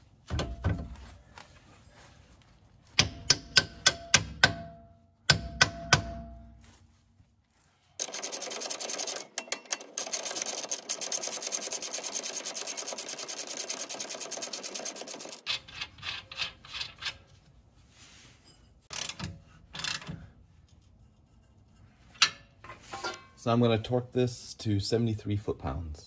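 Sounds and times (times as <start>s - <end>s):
ratchet wrench clicking: 18.9s - 20.1s.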